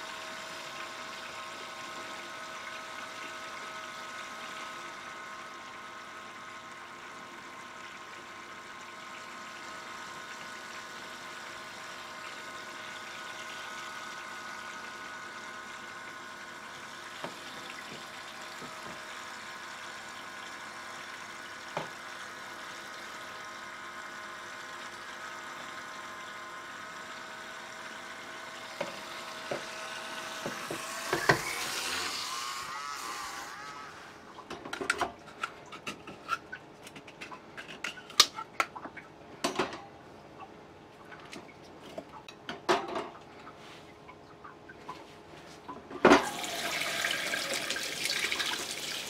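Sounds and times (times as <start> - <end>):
small pump motor whining: 0.0 - 34.5.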